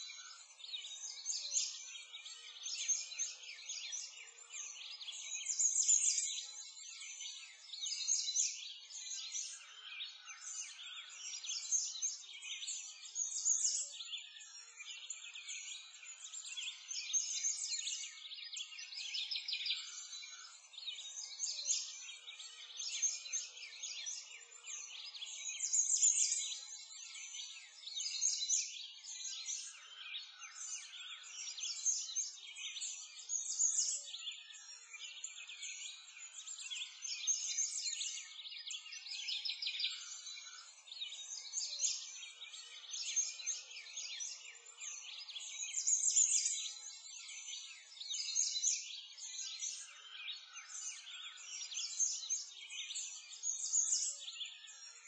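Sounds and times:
small birds chirping and singing: 0:00.0 - 0:55.0.

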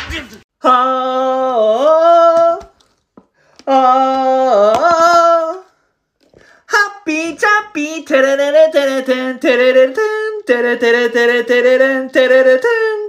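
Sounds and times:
high voice singing unaccompanied: 0:00.6 - 0:02.8, 0:03.6 - 0:05.8, 0:06.7 - 0:13.0.

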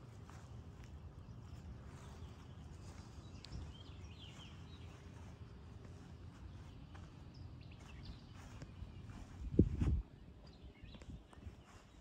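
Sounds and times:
faint bird chirps: 0:06.0 - 0:09.4.

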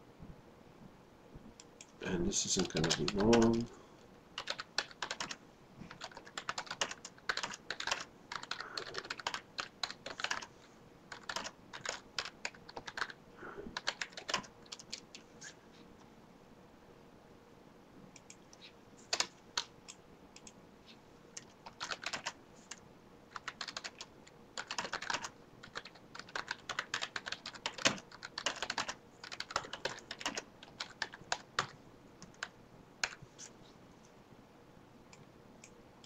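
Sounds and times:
typing on computer keyboard: 0:02.6 - 0:03.7, 0:04.4 - 0:10.5, 0:11.1 - 0:15.2, 0:21.4 - 0:33.2.

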